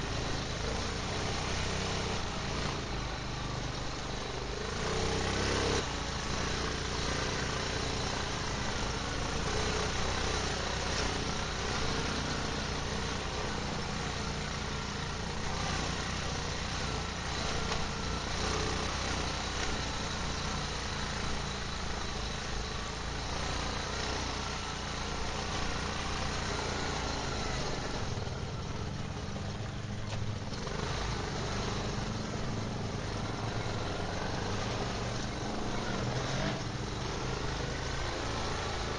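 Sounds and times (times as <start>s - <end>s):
quad bike engine running: 0.0s - 38.9s.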